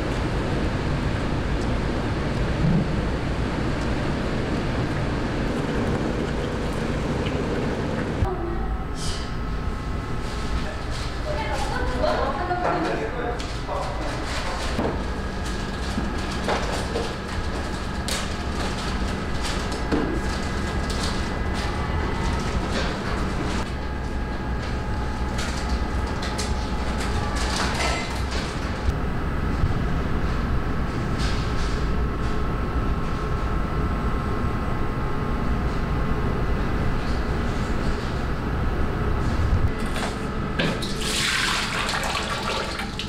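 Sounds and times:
low hum and rumble: 0.0 - 43.0.

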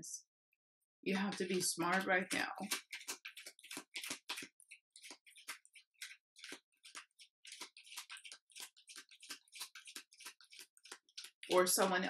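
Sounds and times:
cards being shuffled: 2.7 - 11.4.

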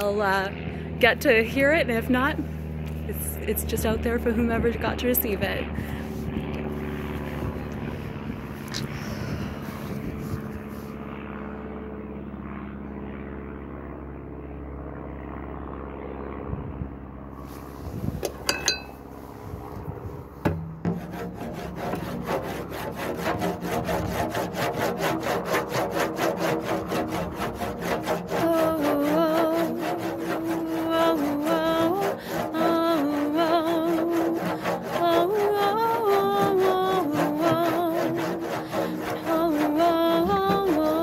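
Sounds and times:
low steady hum: 0.0 - 41.0
beater knocking on drum: 20.4 - 22.0
beater rubbing frame drum: 20.4 - 41.0.

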